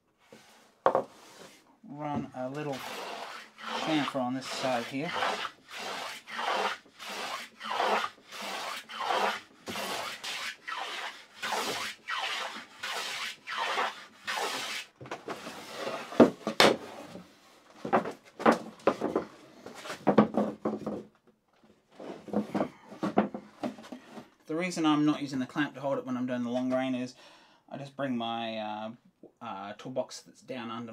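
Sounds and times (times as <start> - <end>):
wooden knocks and clatter: 0.8 - 1.1, 17.8 - 24.2
hand plane cutting wood: 2.5 - 16.3.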